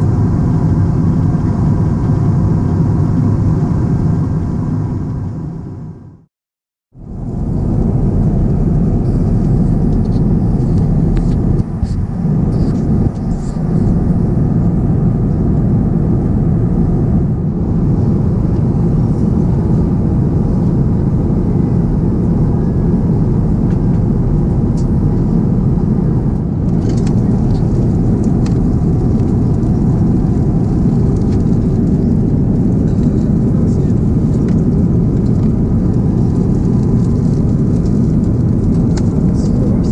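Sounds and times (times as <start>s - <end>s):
airplane cabin roar: 0.0s - 6.3s, 7.0s - 39.9s.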